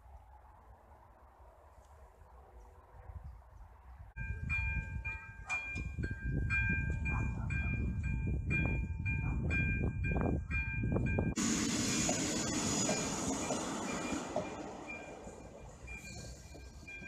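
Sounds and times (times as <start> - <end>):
level crossing warning bell: 4.2 - 11.5, 12.1 - 17.0.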